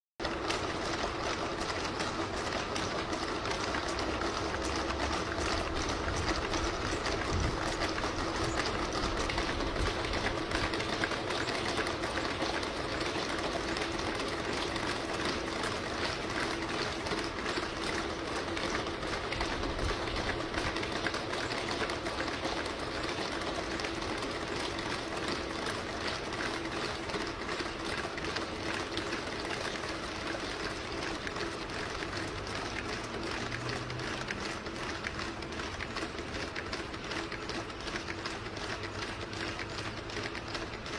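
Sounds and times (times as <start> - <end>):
steady mechanical hum: 0.2 - 40.9.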